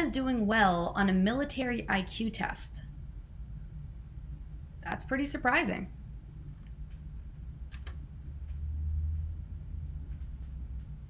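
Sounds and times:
room background hum: 0:00.0 - 0:11.0.

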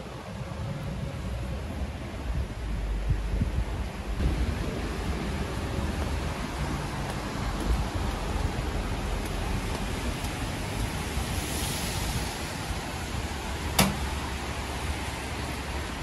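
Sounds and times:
rain: 0:00.0 - 0:16.0
traffic on wet pavement: 0:00.0 - 0:16.0
sharp click: 0:13.8 - 0:14.0.

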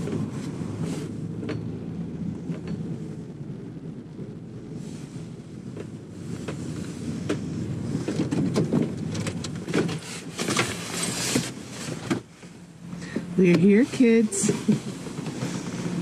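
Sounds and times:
engine and road rumble: 0:00.0 - 0:16.0
knocks and rattles: 0:07.3 - 0:12.3.

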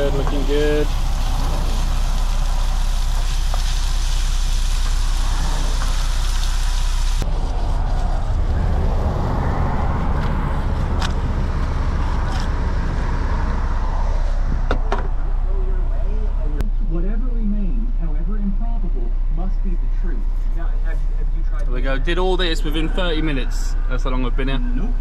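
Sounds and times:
chicken sizzling in a wok: 0:00.0 - 0:07.7
road traffic rumble: 0:00.0 - 0:25.0.

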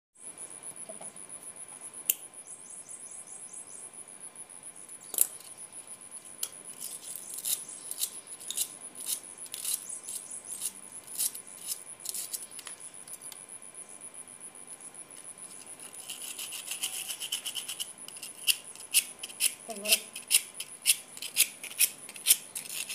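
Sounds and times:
steady high-pitched whine: 0:00.2 - 0:22.9
rasping rub: 0:06.7 - 0:12.4, 0:15.5 - 0:22.9.

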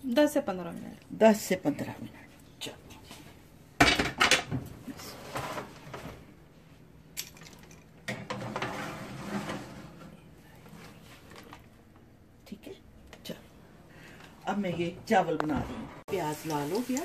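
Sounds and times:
metal tray and rack clattering: 0:08.1 - 0:10.0
rack scraping rattle: 0:08.1 - 0:10.1.

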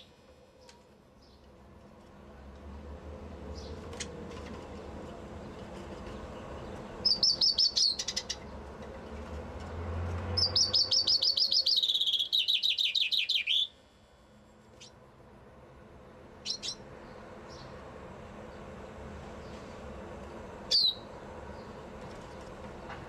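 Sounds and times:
chaffinch singing: 0:06.3 - 0:08.6, 0:10.3 - 0:13.8, 0:16.4 - 0:17.8, 0:19.4 - 0:21.8
short bird chirps: 0:10.4 - 0:13.8.

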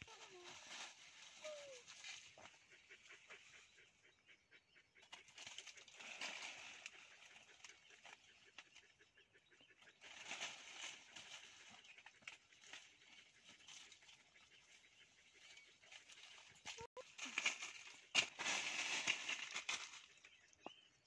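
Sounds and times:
rustling of dry leaves and branches: 0:00.0 - 0:03.8, 0:05.0 - 0:09.0, 0:09.8 - 0:20.6
small crackles: 0:15.4 - 0:20.3.

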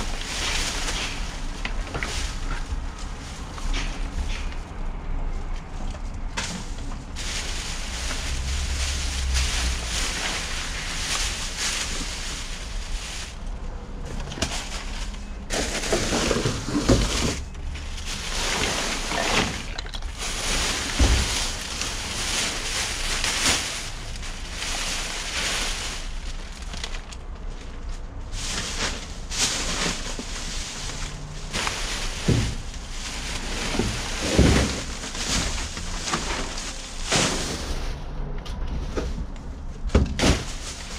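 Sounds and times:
plastic trash bags rustling: 0:00.0 - 0:38.1, 0:38.8 - 0:40.9.

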